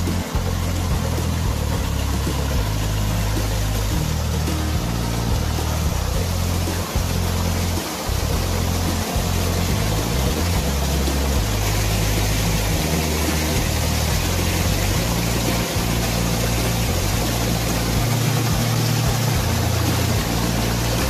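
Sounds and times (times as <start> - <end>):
water pouring into a ditch: 0.0 - 21.0.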